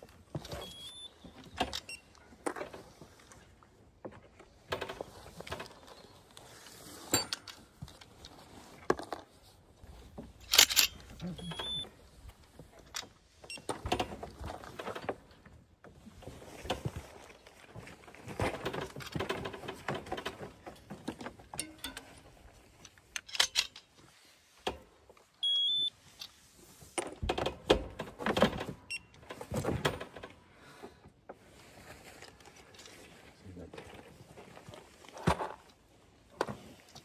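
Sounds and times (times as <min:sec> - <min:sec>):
clicks and rattles of handling: 0:00.0 - 0:09.4, 0:10.0 - 0:25.3
short electronic beep: 0:11.4 - 0:11.9, 0:25.4 - 0:25.9.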